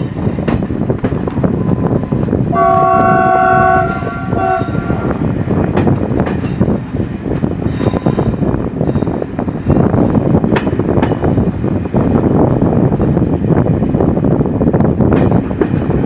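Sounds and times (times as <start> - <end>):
rail-joint clicks: 0.0 - 2.5, 3.8 - 13.5, 15.0 - 16.0
train rumbling on track: 0.0 - 16.0
train horn blast: 2.5 - 5.2.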